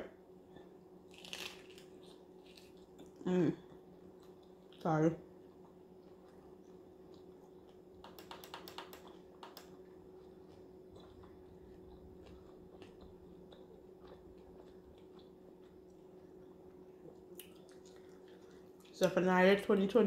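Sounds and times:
steady low hum: 0.0s - 20.0s
laptop keyboard clicking: 8.0s - 9.7s.

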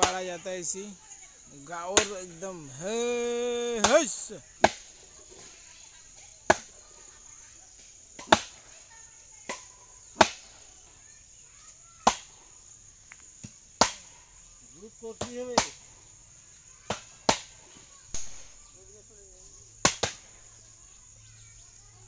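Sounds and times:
man calling out: 0.0s - 4.4s.

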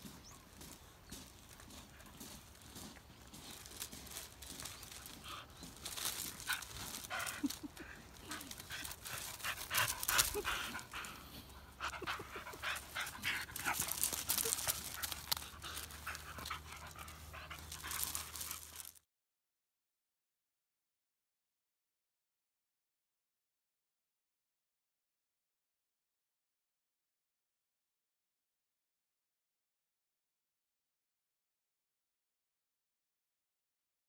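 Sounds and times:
gravel crunching: 0.0s - 19.0s
dog panting: 0.6s - 19.0s.

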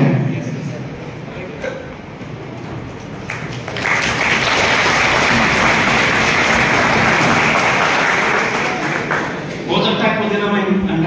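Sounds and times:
audience applauding: 3.1s - 9.6s.

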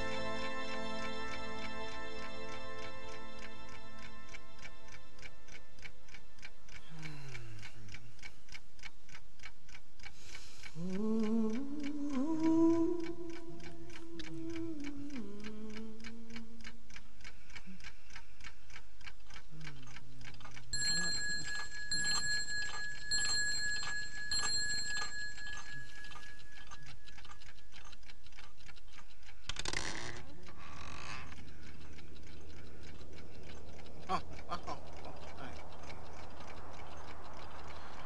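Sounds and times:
rapid even ticking: 0.4s - 38.0s
pulsing bright ringing tone: 20.8s - 27.1s.

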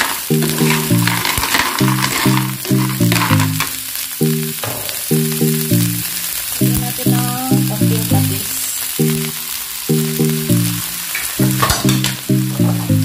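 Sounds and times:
spatula stirring in a pan: 0.0s - 4.0s
clams sizzling in a frying pan: 0.0s - 13.0s
music of repeating low notes: 9.0s - 13.0s.

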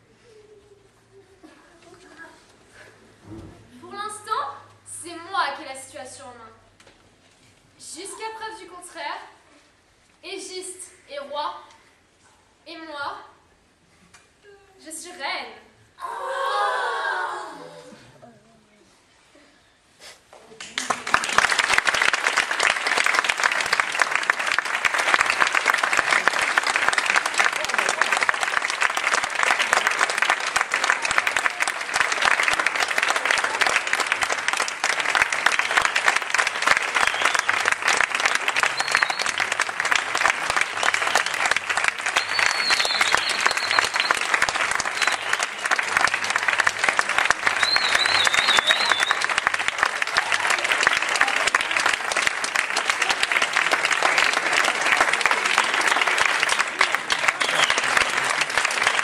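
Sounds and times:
audience applauding: 20.6s - 59.0s
high whistles: 37.0s - 37.7s, 38.6s - 39.5s, 42.1s - 45.8s, 47.5s - 49.4s, 57.4s - 58.0s.

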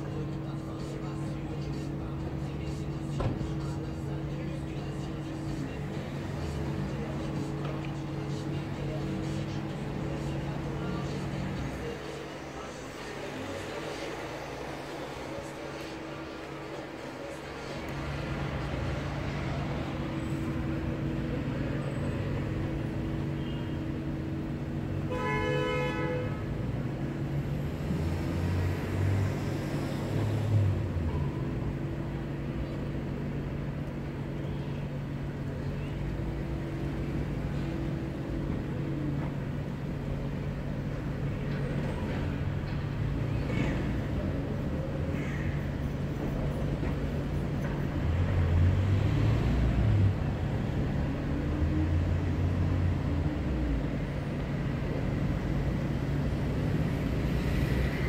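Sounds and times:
traffic rumble and hum: 0.0s - 58.0s
vehicle horn toot: 25.1s - 26.4s.

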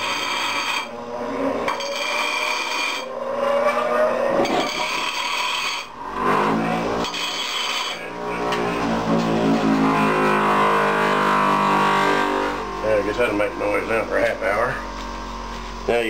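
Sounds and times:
wire brush scraping metal: 0.0s - 1.0s, 1.6s - 9.3s.

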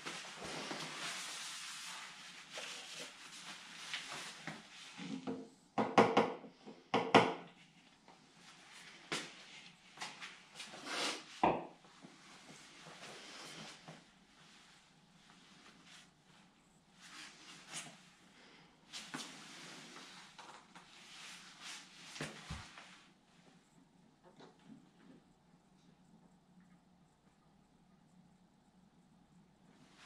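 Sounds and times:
soft hiss: 7.6s - 24.0s.

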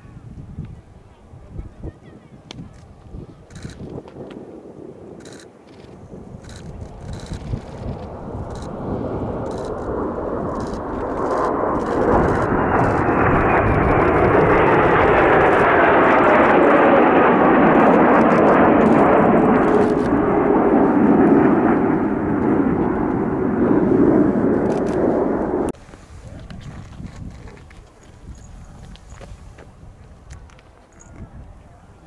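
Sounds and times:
jet flying past: 2.0s - 27.0s.

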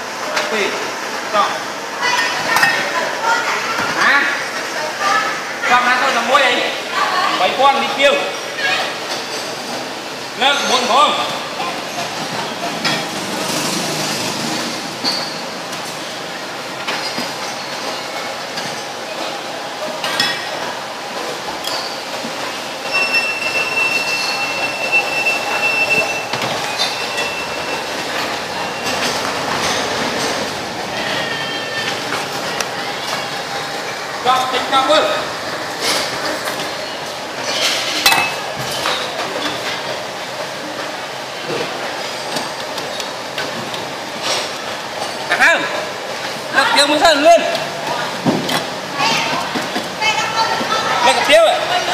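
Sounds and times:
steady background noise: 0.0s - 51.9s
utensils clinking against bowls: 16.7s - 33.4s, 35.8s - 40.0s
bowls and metal utensils clinking: 37.4s - 39.7s.

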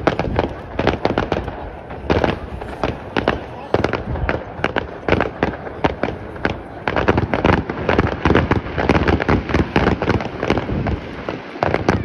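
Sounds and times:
fireworks bangs and crackles: 0.0s - 12.0s.

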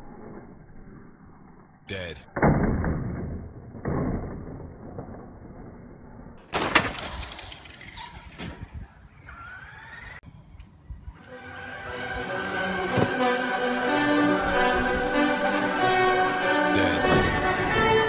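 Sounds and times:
slowed-down rc truck noise: 0.0s - 1.8s, 2.6s - 10.3s, 11.1s - 13.2s
music: 11.2s - 18.0s.

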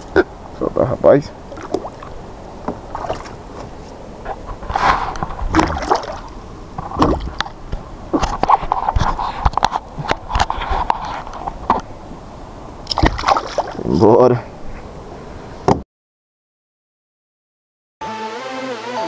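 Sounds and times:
water splashing and sloshing: 0.0s - 14.9s
fish thrashing at surface: 1.5s - 3.7s, 4.6s - 7.6s, 12.9s - 13.8s.

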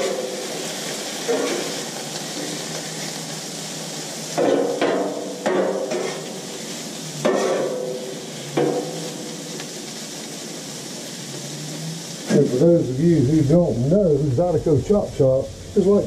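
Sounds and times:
food sizzling: 0.0s - 16.0s
metal spatula clanking on griddle: 1.3s - 1.8s, 4.4s - 6.4s, 7.2s - 9.2s.

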